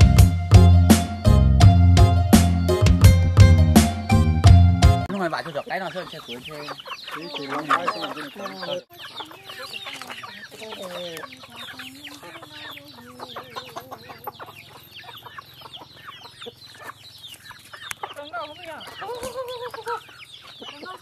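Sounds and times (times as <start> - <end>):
chicks peeping: 4.8 - 21.0
hens clucking: 5.0 - 21.0.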